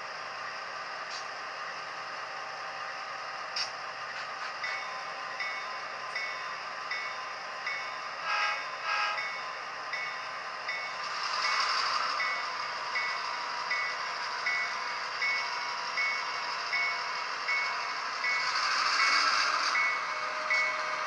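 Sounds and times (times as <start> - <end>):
diesel locomotive engine idle: 0.0 - 21.0
locomotive bell ringing: 4.6 - 21.0.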